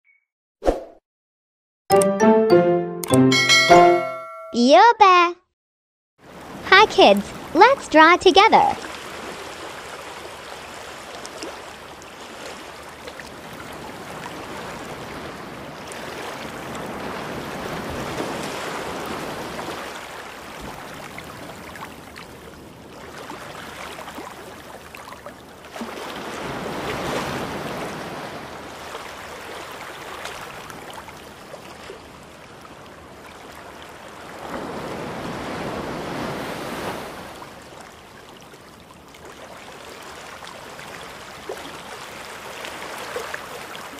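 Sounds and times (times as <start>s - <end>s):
ocean waves washing in: 6.2s - 24.7s, 25.8s - 31.1s, 33.9s - 37.8s.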